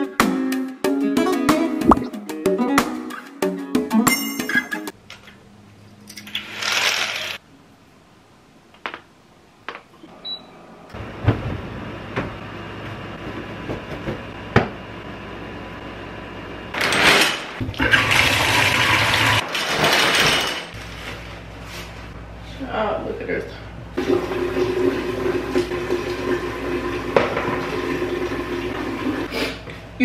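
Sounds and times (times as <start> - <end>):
water running from sink tap: 17.8 - 19.4, 24.0 - 29.3.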